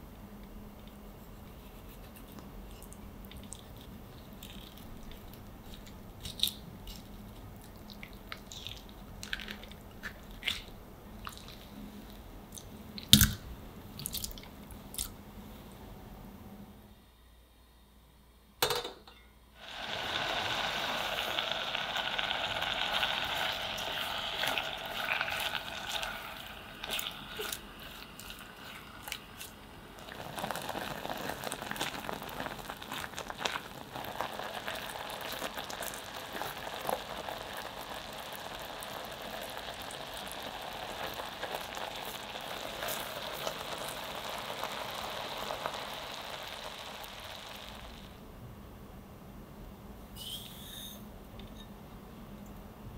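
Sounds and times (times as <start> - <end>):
fruit bubbling and sizzling: 0.6 - 15.0, 19.6 - 48.2.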